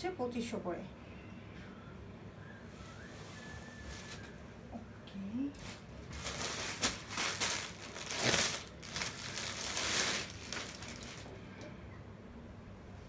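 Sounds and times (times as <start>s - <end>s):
plastic packaging crinkling: 3.7s - 4.3s, 5.6s - 11.3s.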